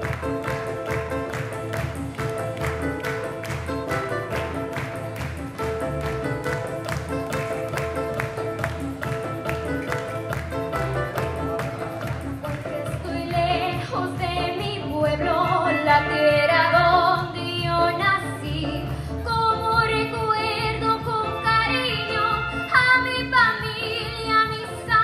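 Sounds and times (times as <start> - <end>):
music with steady bass beat: 0.0 - 25.0
girl singing through a microphone: 13.0 - 25.0.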